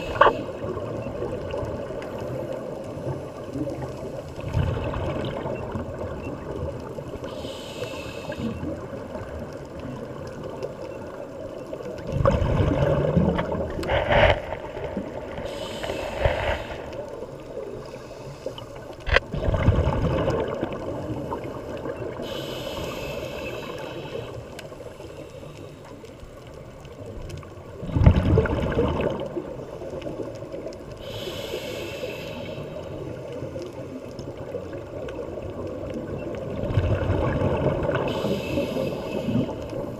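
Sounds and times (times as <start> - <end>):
exhaled bubbles rushing: 4.4 - 5.8, 12.0 - 15.4, 19.3 - 21.4, 27.8 - 29.6, 36.5 - 38.1
regulator hiss on inhalation: 7.2 - 8.6, 15.4 - 17.0, 22.2 - 25.8, 31.0 - 33.1, 38.0 - 39.9.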